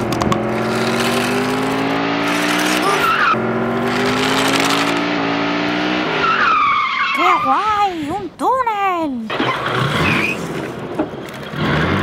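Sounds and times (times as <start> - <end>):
race car engine revving: 0.0 - 7.2, 11.4 - 12.0.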